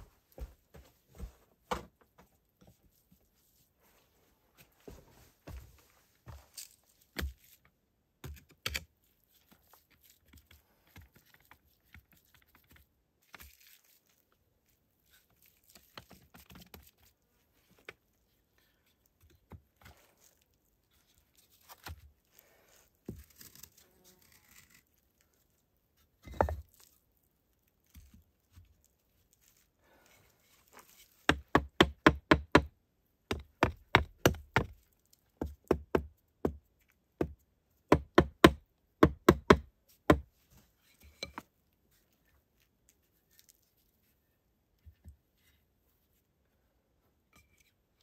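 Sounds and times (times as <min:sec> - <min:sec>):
knocks clicks and scrapes of building work: 0:17.8 - 0:22.1, 0:29.5 - 0:42.4.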